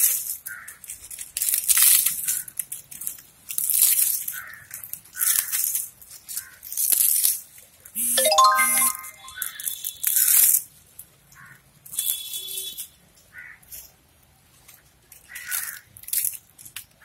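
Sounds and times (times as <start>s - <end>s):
dry palm leaves crackling: 0.0s - 7.7s, 15.2s - 17.0s.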